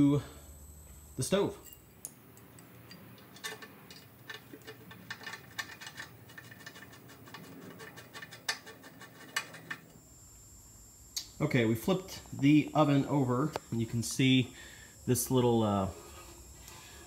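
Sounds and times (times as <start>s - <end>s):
screwdriver clicking on metal: 2.4s - 9.9s.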